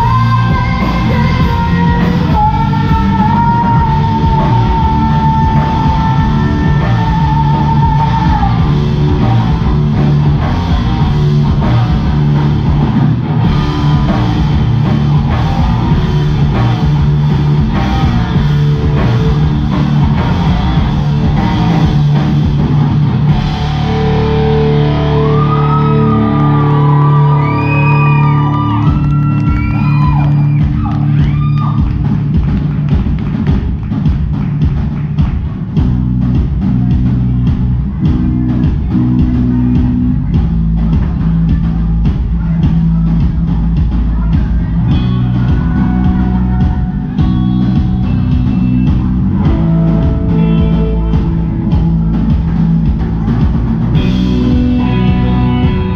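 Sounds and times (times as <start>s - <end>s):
female lead vocal: 0.0s - 9.6s
drum kit beat: 0.0s - 55.9s
live rock band: 0.0s - 55.9s.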